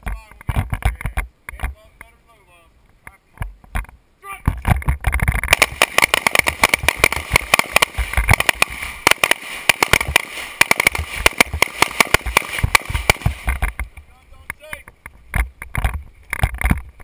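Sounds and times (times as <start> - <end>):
rapid rifle gunfire: 5.5 - 13.7
other rifles firing: 5.5 - 13.8.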